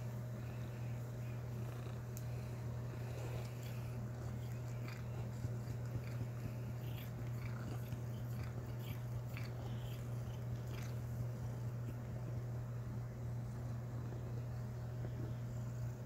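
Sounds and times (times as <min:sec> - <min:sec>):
cat licking clicks: 0:03.0 - 0:11.0.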